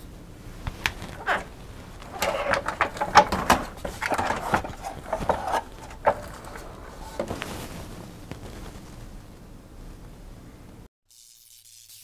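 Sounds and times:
computer case knocks and scrapes: 1.0 - 7.7.

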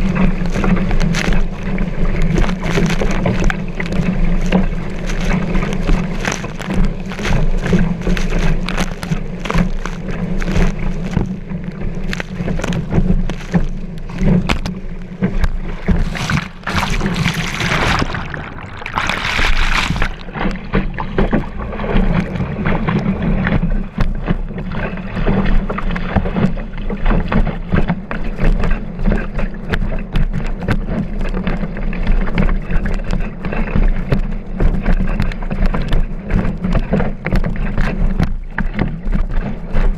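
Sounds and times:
low rumble: 0.0 - 26.8
underwater churning rush: 0.0 - 39.9
water rushing past board: 0.0 - 39.9.

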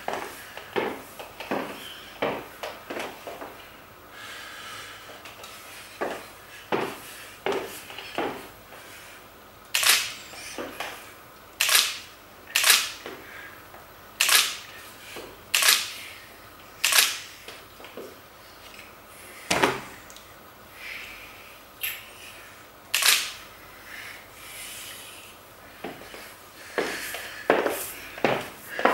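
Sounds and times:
high heels clicking on wood floor: 0.0 - 3.7, 5.2 - 8.5, 25.8 - 28.9.

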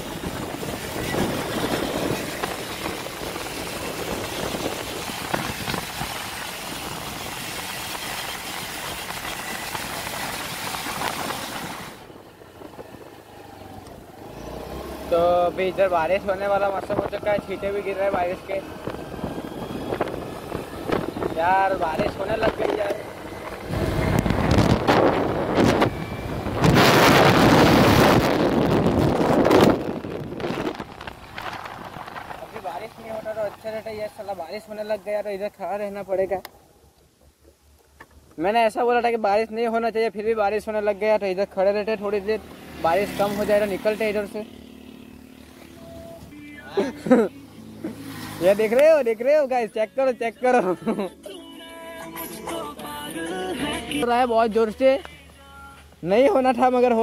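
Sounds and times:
wind over microphone: 0.0 - 13.3, 16.8 - 33.5
scooter engine running: 0.0 - 34.8, 42.1 - 48.6
road noise: 0.0 - 57.0.

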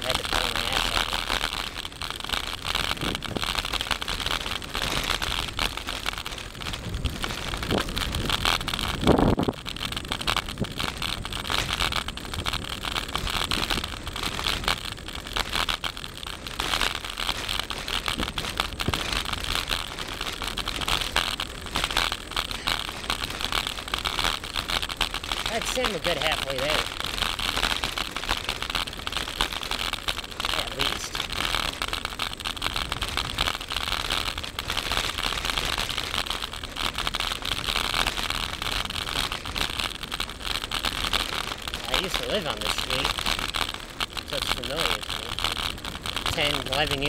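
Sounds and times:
bicycle rolling over rough asphalt: 0.0 - 47.0
wind on microphone: 2.6 - 15.6, 16.2 - 21.1.

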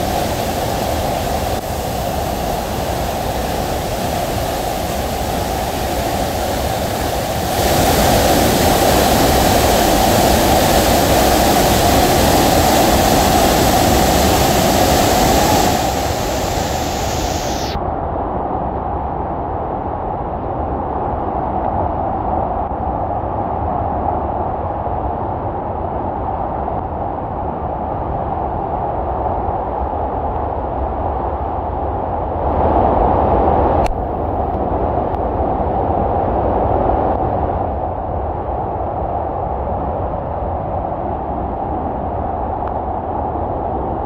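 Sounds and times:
rushing white water: 0.0 - 17.8.

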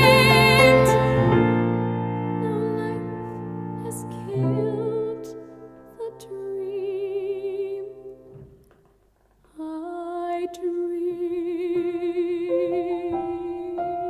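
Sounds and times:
woman singing with vibrato: 0.0 - 1.4, 2.4 - 3.2, 3.8 - 8.1, 9.5 - 14.0
piano chords: 0.0 - 8.5, 10.9 - 14.0.

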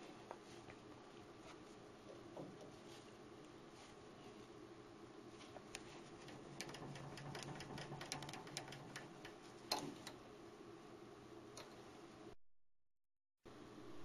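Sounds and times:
faint steady hum: 0.0 - 12.4, 13.5 - 14.0
clicks and light metal knocks: 5.6 - 10.2.

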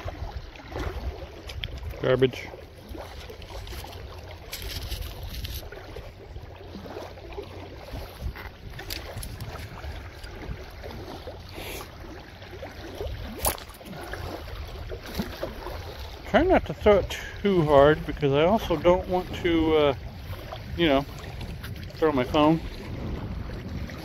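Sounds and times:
wind rumble on microphone: 0.0 - 24.0
magnet scraping and knocking: 3.6 - 5.6, 8.3 - 10.3.

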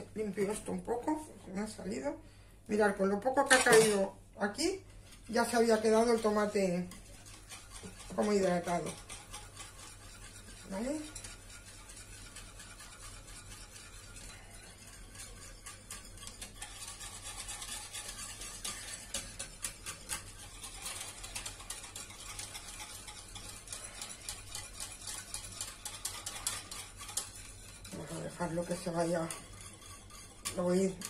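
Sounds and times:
whisk scraping against bowl: 0.0 - 2.1, 3.0 - 31.0.

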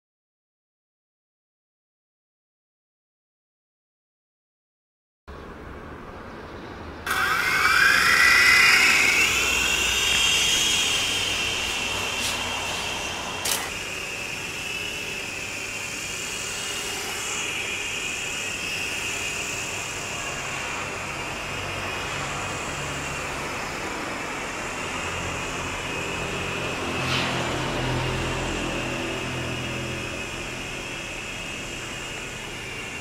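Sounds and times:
toy helicopter motor whine: 7.1 - 33.0
sharp click: 13.4 - 13.8.

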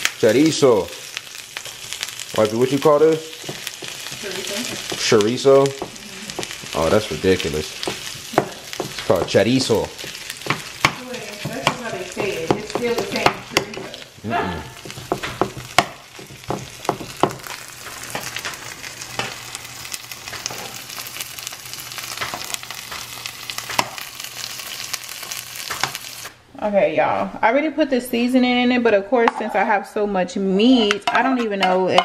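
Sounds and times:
meat sizzling in pans: 0.0 - 26.4.

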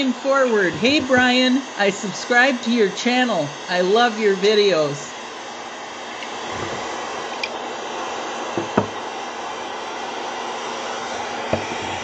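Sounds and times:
soft knocks: 8.6 - 9.0.

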